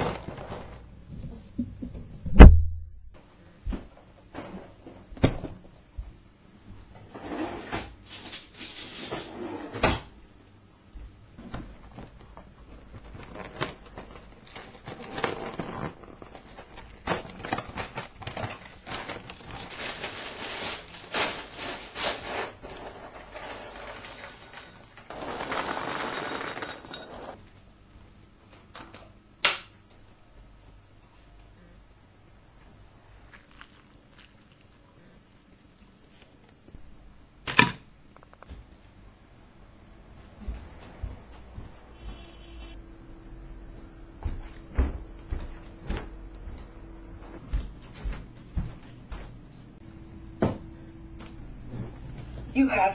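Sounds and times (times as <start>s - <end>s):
dry cereal rattling into bowl: 18.5s - 27.4s.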